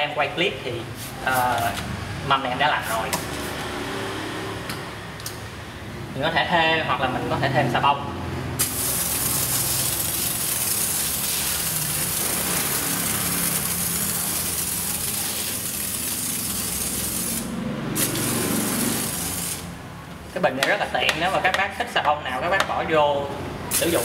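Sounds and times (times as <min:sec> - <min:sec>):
pressure sprayer hissing: 0:08.6 - 0:19.9, 0:23.7 - 0:24.0.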